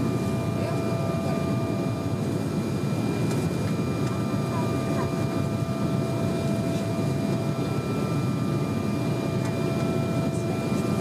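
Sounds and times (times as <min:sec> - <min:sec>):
airliner cabin roar: 0:00.0 - 0:11.0
steady whining tones: 0:00.0 - 0:11.0.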